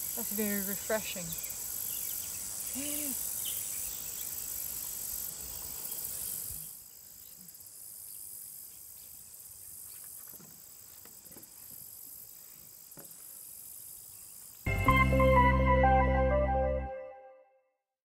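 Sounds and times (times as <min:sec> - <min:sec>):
crickets trilling: 0:00.0 - 0:14.7.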